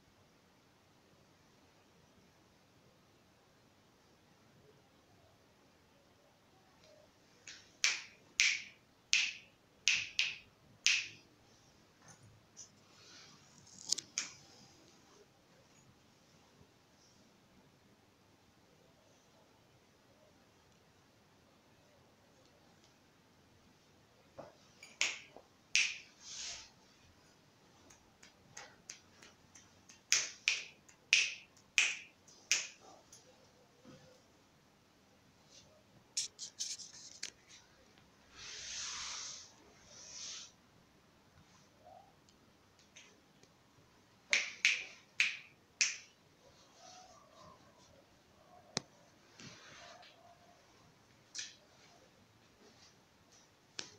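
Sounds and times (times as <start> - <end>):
fingers snapping: 7.4 - 11.2, 25.0 - 26.0, 27.9 - 32.8, 44.3 - 46.1.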